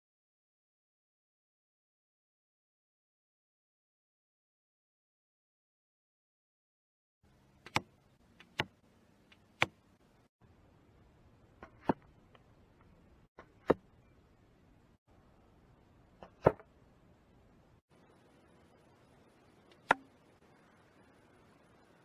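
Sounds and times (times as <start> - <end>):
arrow striking foam target: 16.2 - 16.7.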